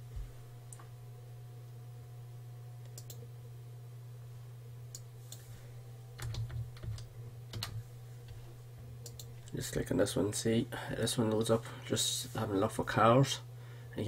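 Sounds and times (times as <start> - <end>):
low electrical hum: 0.0 - 14.0
computer mouse clicks: 2.9 - 3.2, 9.0 - 9.3
keyboard typing: 6.2 - 7.8.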